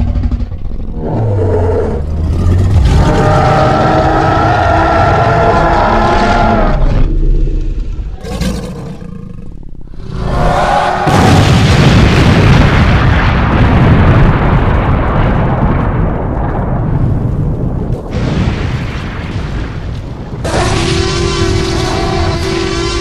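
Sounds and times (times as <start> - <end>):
cartoon explosion rumbling: 10.1 - 23.0.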